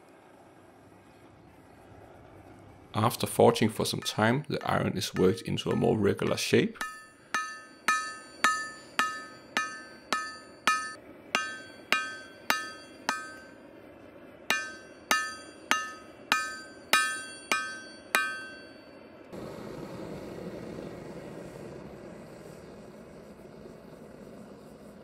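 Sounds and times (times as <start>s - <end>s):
hammer ringing on anvil: 4.0s - 13.6s, 14.5s - 19.1s.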